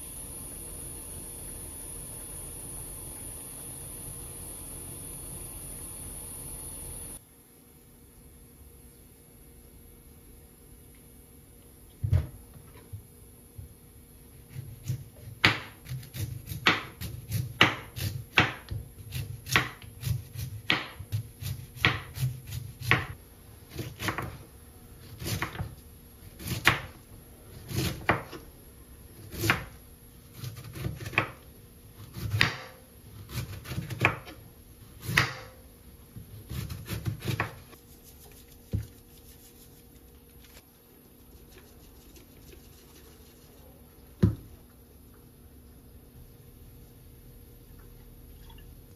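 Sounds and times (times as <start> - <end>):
knife chopping on wooden board: 14.5 - 24.4, 25.1 - 25.8, 26.4 - 26.9, 27.7 - 28.4, 29.3 - 29.7, 30.4 - 31.4, 32.0 - 34.4, 35.0 - 35.6, 36.4 - 37.7.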